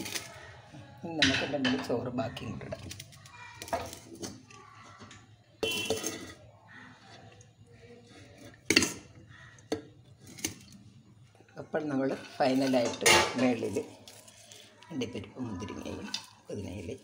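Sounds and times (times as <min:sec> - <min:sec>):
metal utensils knocking on steel pot: 0:01.2 - 0:02.2, 0:05.0 - 0:06.4, 0:12.6 - 0:13.7.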